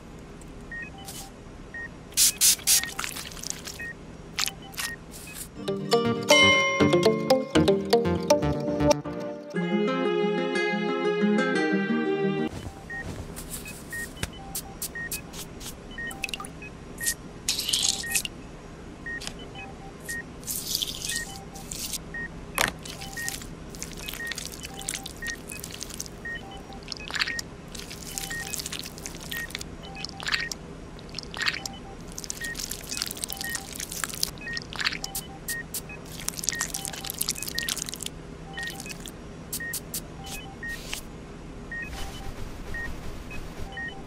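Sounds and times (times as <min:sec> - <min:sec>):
wet squelching and scraping: 0:02.6 - 0:05.4, 0:20.4 - 0:22.0, 0:22.8 - 0:39.1
steady low hum: 0:12.5 - 0:44.0
two-pitch electronic beeps: 0:20.8 - 0:21.7, 0:28.0 - 0:28.6, 0:33.3 - 0:33.7, 0:38.5 - 0:39.0, 0:41.8 - 0:44.0.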